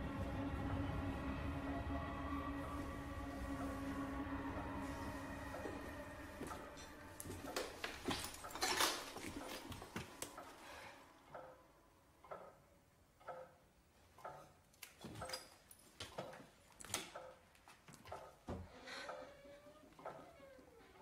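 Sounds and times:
footsteps on creaking wooden stairs: 5.5 - 10.5.

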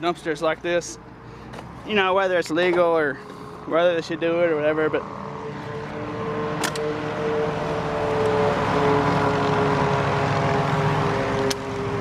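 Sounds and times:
vehicle engine drone passing: 2.9 - 12.0.

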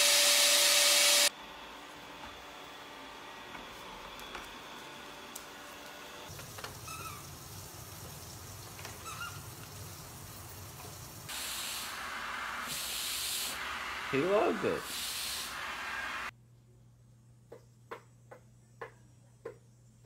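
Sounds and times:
vacuum hose nozzle hissing: 8.7 - 16.3
robot vacuum cleaner humming: 11.8 - 16.3.

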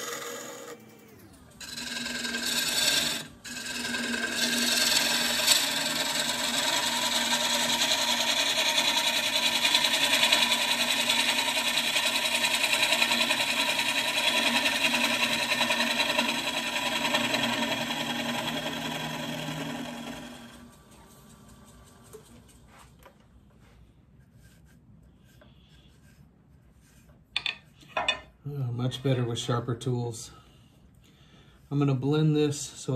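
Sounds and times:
gouge cutting wood on lathe: 0.0 - 20.7
lathe hum: 0.0 - 22.2.

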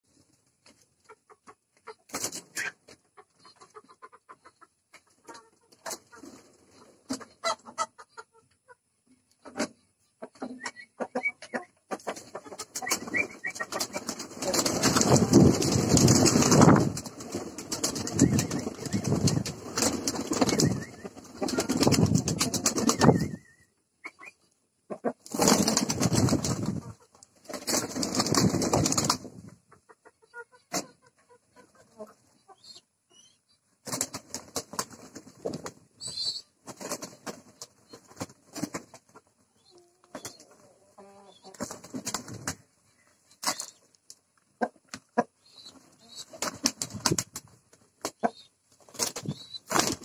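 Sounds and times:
pigeons flapping wings: 12.7 - 23.3, 25.3 - 29.3, 33.8 - 39.0, 41.6 - 42.6, 46.2 - 48.1, 48.8 - 50.0.

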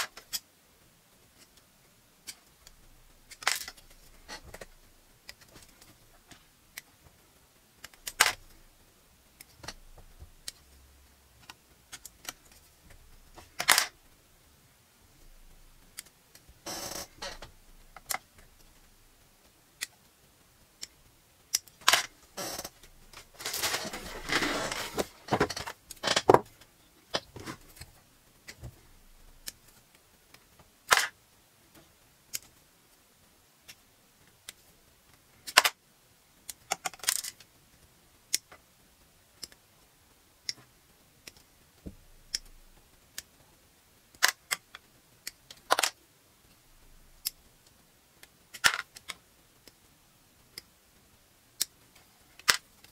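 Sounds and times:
plastic runners rattling: 23.2 - 26.5.

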